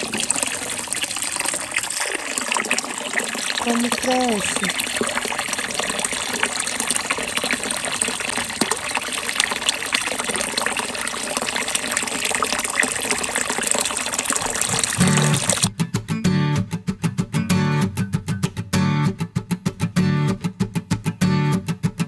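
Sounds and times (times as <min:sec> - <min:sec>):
water splashing into pond: 0:00.0 - 0:15.7.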